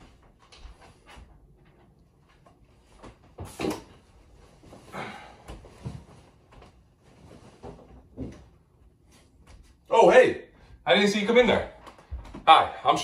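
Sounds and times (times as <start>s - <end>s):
cloth rustling: 5.6s - 9.9s.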